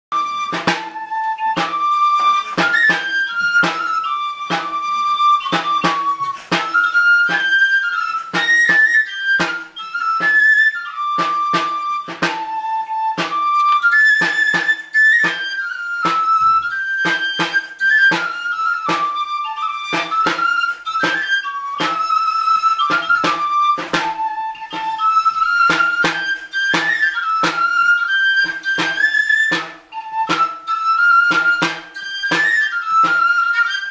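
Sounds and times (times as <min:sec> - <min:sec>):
high flute-like pipe dance tune: 0:00.1 - 0:33.9
drum steady beat: 0:11.2 - 0:13.4.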